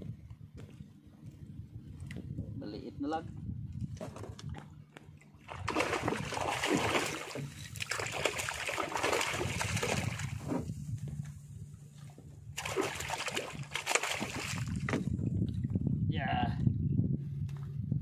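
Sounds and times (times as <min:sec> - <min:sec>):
fish splashing in water: 0:05.4 - 0:10.4, 0:12.6 - 0:14.9.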